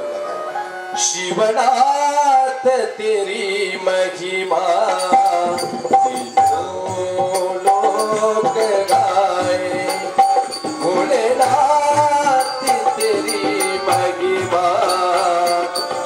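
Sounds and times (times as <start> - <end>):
person singing: 1.1 - 16.0
tabla: 3.4 - 16.0
harmonium held notes: 4.0 - 16.0.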